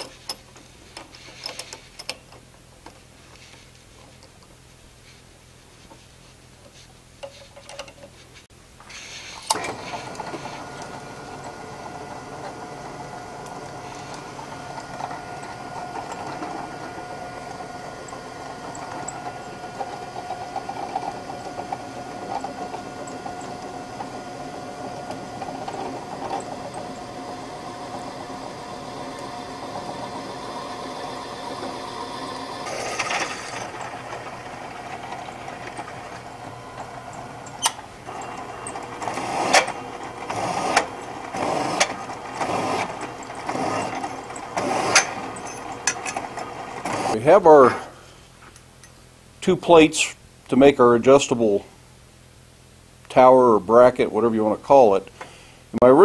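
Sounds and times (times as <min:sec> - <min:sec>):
drill press boring through steel: 0:08.9 - 0:47.8.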